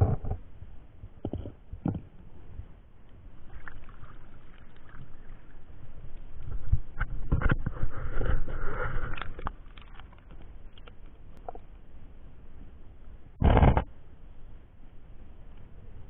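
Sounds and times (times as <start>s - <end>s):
water sloshing: 3.4s - 5.8s, 8.9s - 11.6s.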